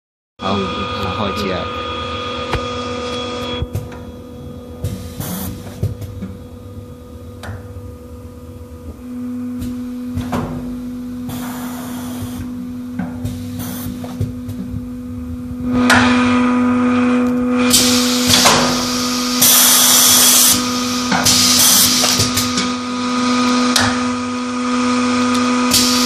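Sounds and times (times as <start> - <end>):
machine humming: 0.4 - 26.0
air hissing: 4.8 - 6.0, 11.2 - 14.2, 17.7 - 22.6, 25.7 - 26.0.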